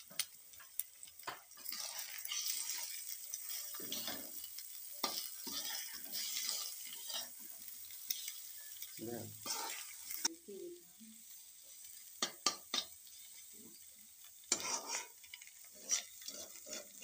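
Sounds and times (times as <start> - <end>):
vegetables sizzling in oil: 0.0 - 17.0
metal spatula clicking on pan: 12.2 - 13.0.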